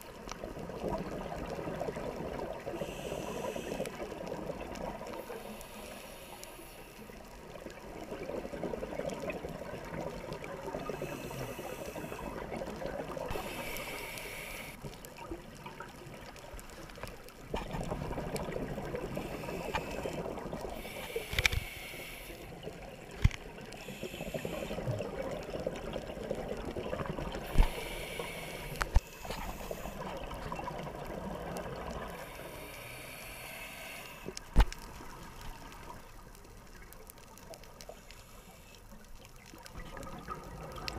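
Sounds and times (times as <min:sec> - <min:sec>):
regulator hissing inhalations: 0:02.8 - 0:04.0, 0:05.2 - 0:07.0, 0:10.9 - 0:12.4, 0:13.3 - 0:14.8, 0:19.2 - 0:22.5, 0:23.8 - 0:25.0, 0:27.4 - 0:30.1, 0:32.2 - 0:34.4.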